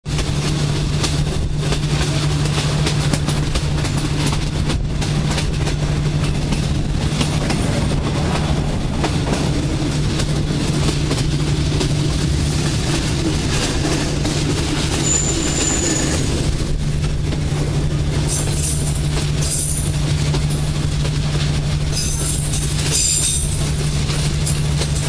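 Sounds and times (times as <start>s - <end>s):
wheel and track rushing: 0.0s - 25.0s
wheels clattering on rails: 0.0s - 25.0s
constant low hum: 16.4s - 25.0s.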